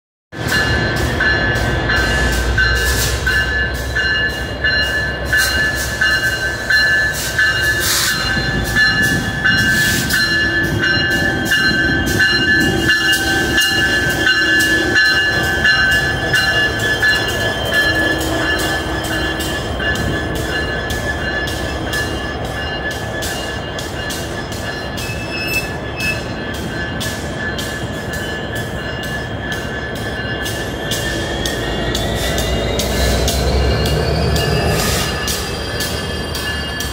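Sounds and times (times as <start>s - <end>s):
locomotive bell ringing: 0.4s - 36.9s.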